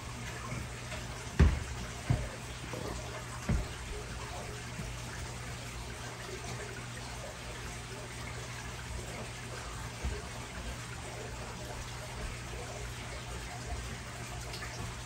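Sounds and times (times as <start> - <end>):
low equipment hum: 0.0 - 15.0
water trickling and splashing: 0.0 - 15.0
soft thump: 1.4 - 2.3, 3.4 - 3.8.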